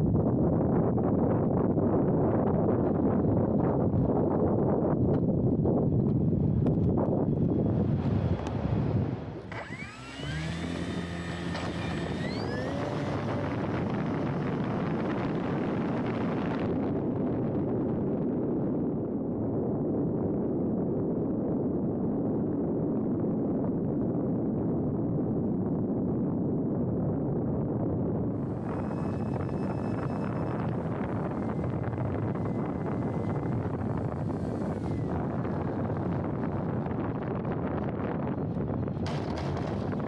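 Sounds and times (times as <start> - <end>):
wind rushing over microphone: 0.0 - 40.0
electric motor and propeller whine: 6.1 - 18.4, 28.2 - 40.0.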